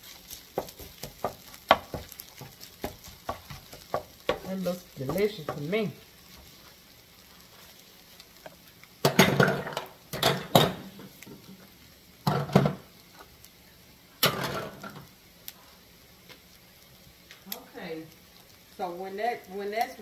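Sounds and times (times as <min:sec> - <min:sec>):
spoon scraping a skillet: 0:00.0 - 0:11.5
food sizzling faintly: 0:00.0 - 0:20.0.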